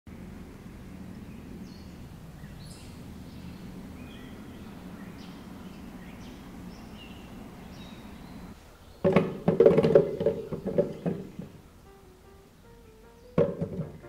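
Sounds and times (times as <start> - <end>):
low background hum: 0.1 - 14.0
small birds chirping: 0.2 - 14.0.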